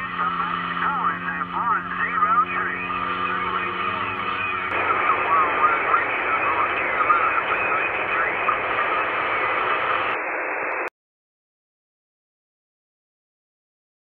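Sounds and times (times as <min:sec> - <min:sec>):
garbled radio voices: 0:00.0 - 0:10.2
low steady hum: 0:00.0 - 0:10.2
radio static hiss: 0:00.0 - 0:10.9.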